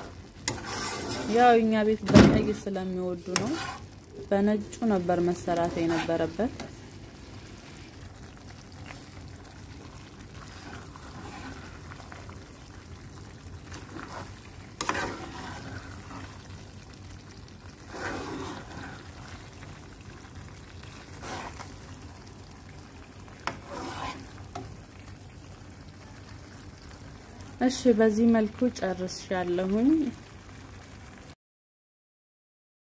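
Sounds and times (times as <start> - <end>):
low steady hum: 0.0 - 23.5
metal spoon stirring creamy sauce: 0.4 - 1.4, 3.2 - 4.0, 5.4 - 6.8, 8.8 - 12.5, 13.6 - 16.4, 17.8 - 19.7, 20.8 - 21.9, 23.4 - 24.7
squelching scrapes: 0.5 - 1.4, 3.2 - 3.9, 5.6 - 6.7, 10.4 - 12.2, 13.7 - 16.4, 17.9 - 19.4, 20.9 - 21.8, 23.5 - 24.4.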